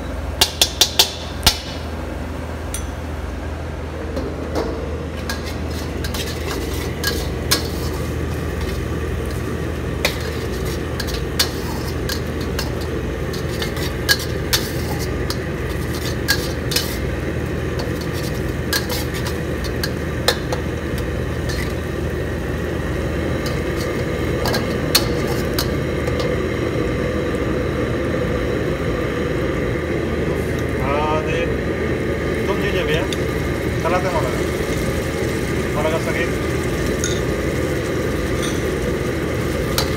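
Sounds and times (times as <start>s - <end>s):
steady low hum: 0.0s - 39.9s
ladle scraping in wok: 5.2s - 21.9s
onions frying in oil: 5.2s - 39.9s.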